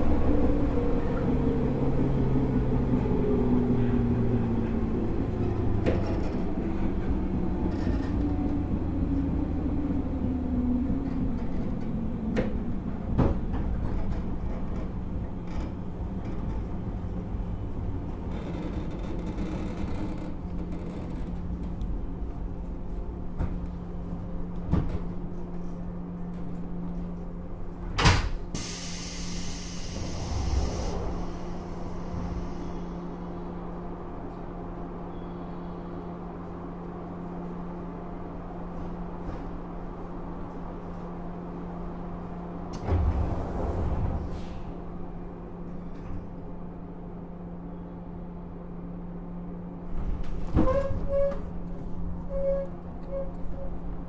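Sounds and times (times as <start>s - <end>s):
train clunks: 3.8s - 8.9s, 11.0s - 22.1s, 24.5s - 25.6s, 26.3s - 33.2s, 42.6s - 46.6s
hiss of air: 28.5s - 33.1s
train motor whine: 28.5s - 33.8s.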